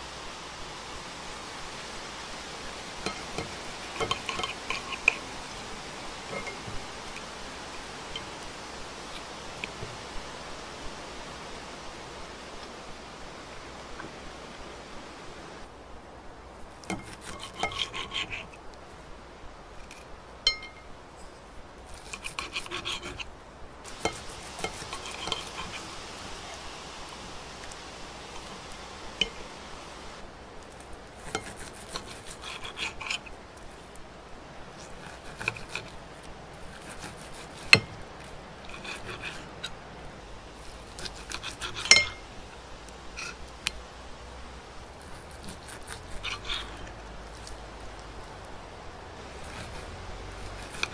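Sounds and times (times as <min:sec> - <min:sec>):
fork tines clinking: 0:03.0 - 0:05.2, 0:20.5 - 0:20.9, 0:41.1 - 0:42.3
knife sawing through meat: 0:17.0 - 0:18.5, 0:21.9 - 0:23.2, 0:23.9 - 0:26.0, 0:31.2 - 0:33.3, 0:34.8 - 0:36.0, 0:36.6 - 0:37.9, 0:38.7 - 0:39.6, 0:40.6 - 0:42.1, 0:45.0 - 0:47.0, 0:49.2 - 0:50.9.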